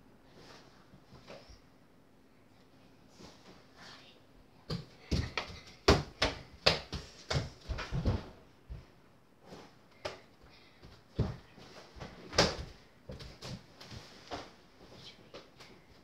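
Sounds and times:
small ball bouncing: 0:04.7 - 0:08.2.

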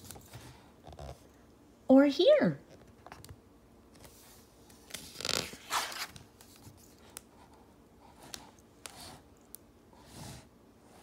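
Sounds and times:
book page turning: 0:03.9 - 0:07.5.

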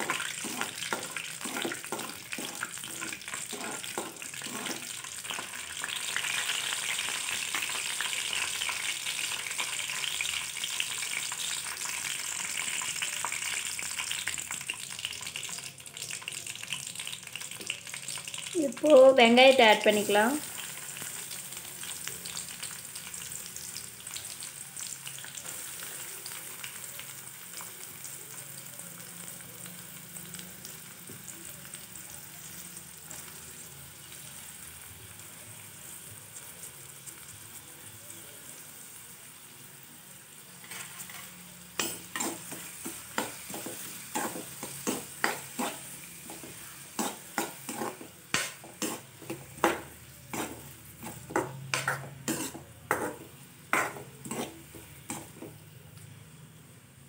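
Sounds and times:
metal spoon scraping pan: 0:00.0 - 0:04.9, 0:40.6 - 0:55.6
onions sizzling in hot oil: 0:00.0 - 0:57.0.

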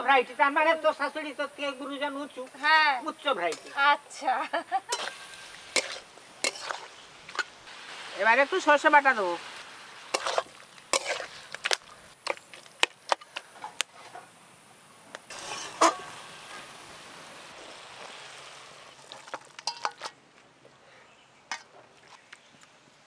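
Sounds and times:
soft sizzle: 0:00.1 - 0:20.8
metal spatula scraping pan: 0:03.5 - 0:03.8, 0:04.9 - 0:07.5, 0:10.1 - 0:11.6, 0:15.3 - 0:16.2, 0:19.2 - 0:20.1.

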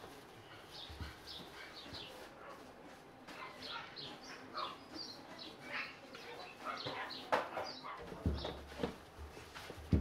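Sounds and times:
small animals chirping and squeaking: 0:03.3 - 0:08.7.

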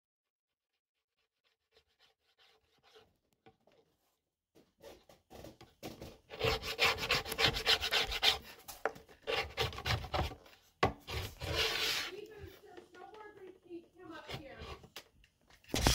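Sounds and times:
plastic scraper scraping wax: 0:04.8 - 0:15.1.

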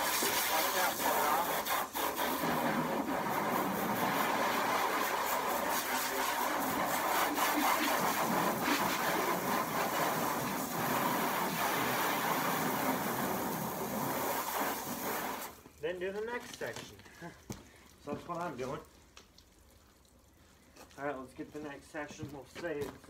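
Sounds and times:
hose spraying water on car: 0:00.0 - 0:15.6.

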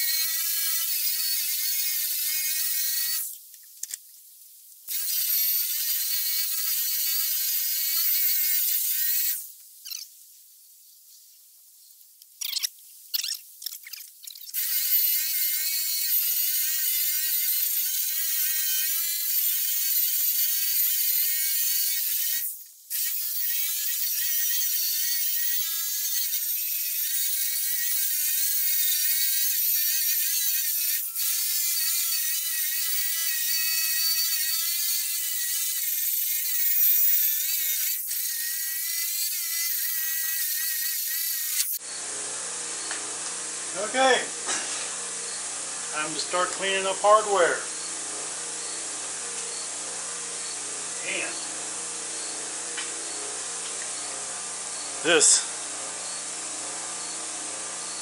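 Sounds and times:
rotary tool grinding metal: 0:00.0 - 0:04.0, 0:04.9 - 0:10.1, 0:12.4 - 0:42.0.

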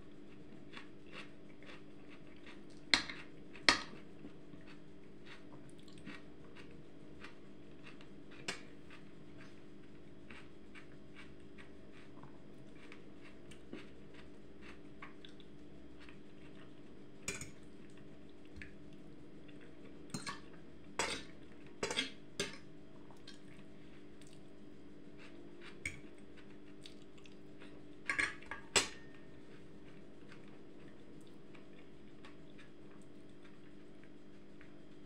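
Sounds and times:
steady low hum: 0:00.0 - 0:35.0
cutlery clinking on a dish: 0:21.0 - 0:22.6, 0:28.1 - 0:29.1.

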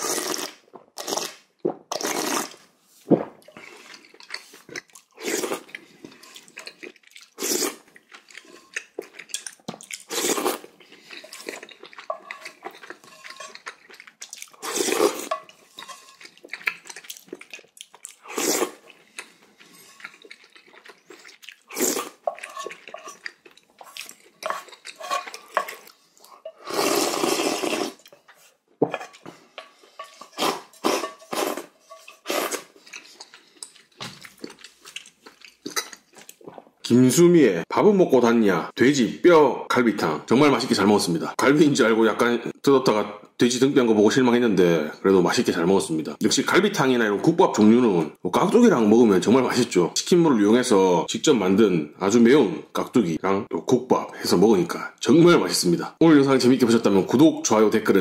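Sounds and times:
slurping broth: 0:00.0 - 0:02.7, 0:03.4 - 0:36.8
chewing: 0:03.4 - 0:36.9.

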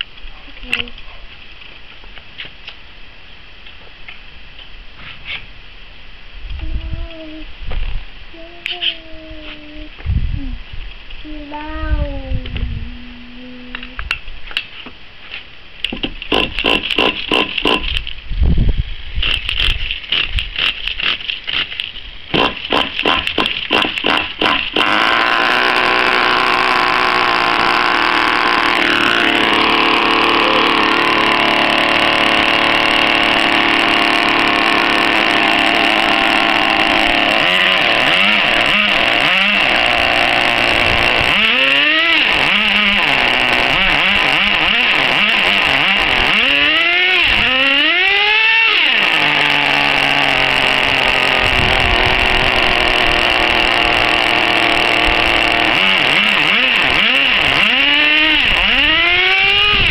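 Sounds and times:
small glow engine revving: 0:22.3 - 0:59.9.

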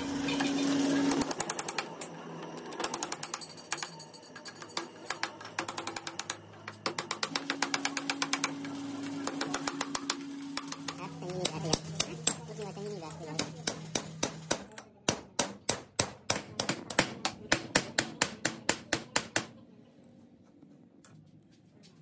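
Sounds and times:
hammer tapping steel punch: 0:13.3 - 0:19.5.

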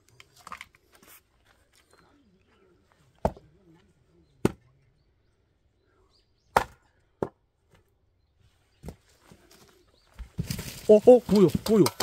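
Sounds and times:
axe chopping firewood: 0:03.2 - 0:03.4, 0:04.4 - 0:04.6, 0:06.5 - 0:07.8, 0:11.1 - 0:12.0.

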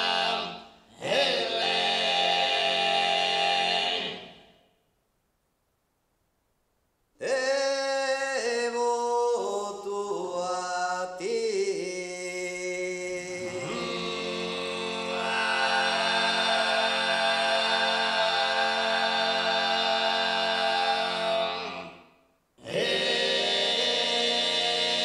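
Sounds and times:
male solo voice singing: 0:07.2 - 0:13.8.

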